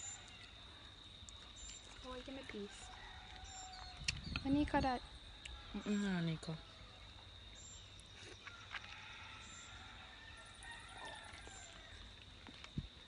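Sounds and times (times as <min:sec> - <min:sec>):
distant chickens: 0:02.5 - 0:04.1, 0:08.3 - 0:12.4.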